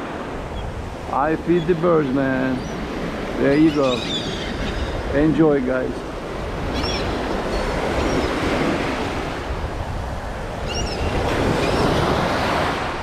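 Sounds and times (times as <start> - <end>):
surf washing up beach: 0.0 - 13.0
gull calls: 3.4 - 5.2, 6.7 - 8.4.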